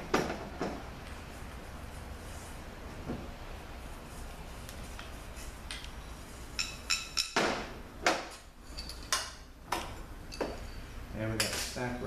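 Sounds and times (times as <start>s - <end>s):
metallic clinks: 8.7s - 9.2s.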